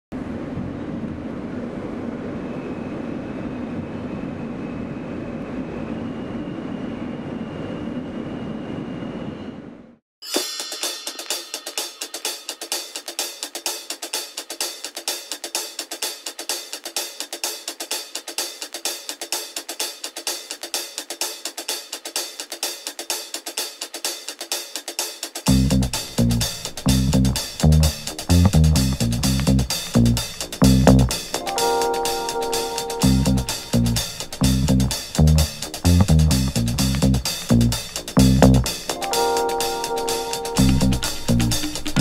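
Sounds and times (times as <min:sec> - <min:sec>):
faint high whine: 0:00.2 - 0:10.0, 0:25.5 - 0:35.8
subway car running noise: 0:00.2 - 0:10.0, 0:25.5 - 0:42.0
fast drum beat with hi-hat: 0:10.2 - 0:42.0.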